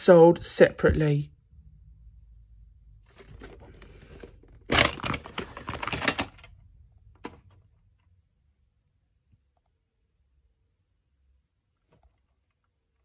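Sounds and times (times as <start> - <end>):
plastic case clicks and rattles: 3.1 - 6.6, 7.2 - 7.6.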